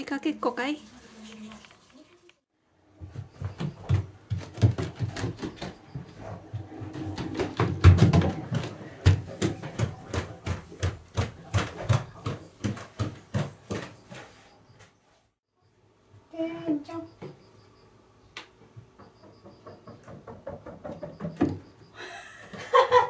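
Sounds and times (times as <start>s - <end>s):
footsteps on wooden floor: 3.0s - 14.6s.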